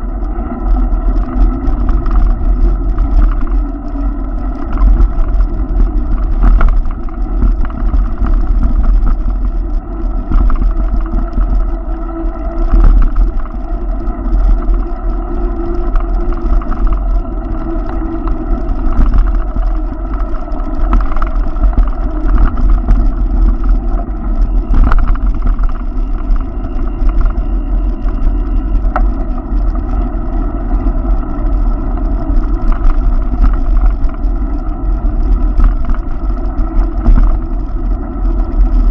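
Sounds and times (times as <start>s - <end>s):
bicycle road noise rumble: 0.0s - 38.9s
wind noise on microphone: 0.0s - 38.9s.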